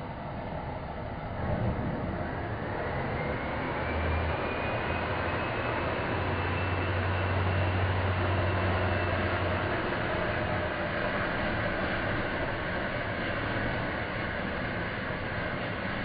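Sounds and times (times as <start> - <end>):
faint high ringing tone: 3.5 - 14.2.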